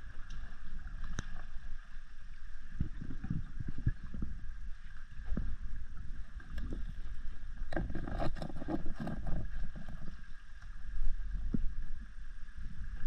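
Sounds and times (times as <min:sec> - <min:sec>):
underwater water rush: 0:00.0 - 0:13.0
knocks and scrapes: 0:07.7 - 0:10.2.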